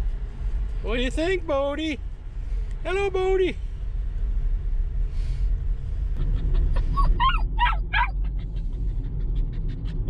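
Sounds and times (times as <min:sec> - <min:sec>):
car rumbling on road: 0:00.0 - 0:10.0
puppy whimpering and yipping: 0:06.2 - 0:10.0.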